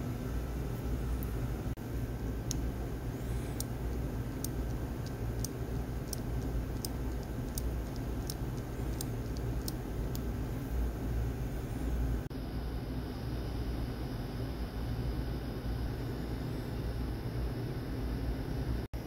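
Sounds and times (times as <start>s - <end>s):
steady low hum: 0.0s - 19.0s
watch mechanism clicking: 3.4s - 10.4s.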